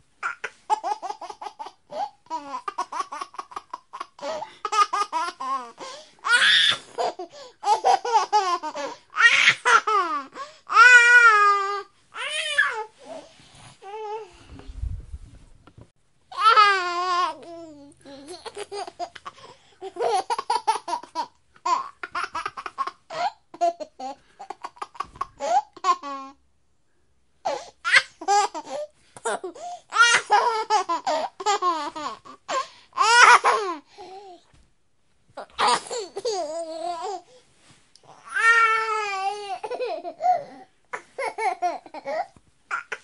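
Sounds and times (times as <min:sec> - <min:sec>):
baby giggling: 0:18.1 - 0:26.2.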